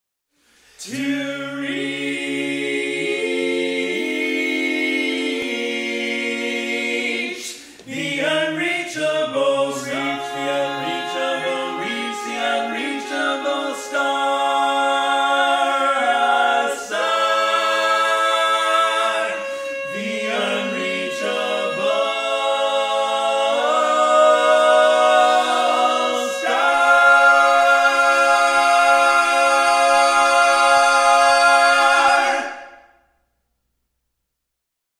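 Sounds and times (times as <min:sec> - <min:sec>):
male quartet singing a cappella: 0:00.8 - 0:32.9.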